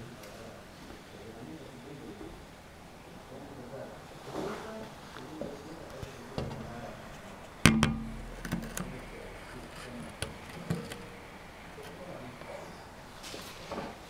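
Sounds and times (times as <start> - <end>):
sharp ringing knock: 7.7 - 9.0.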